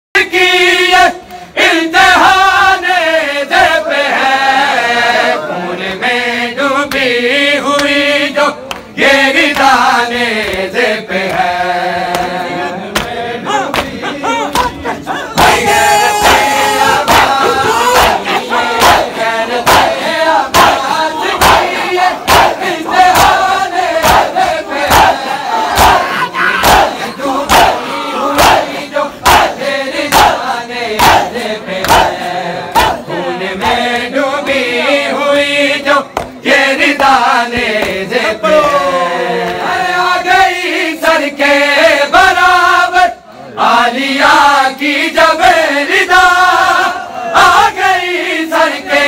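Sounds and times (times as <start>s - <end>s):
men chanting together: 0.2s - 49.0s
hands slapping bare chests: 12.1s - 14.8s.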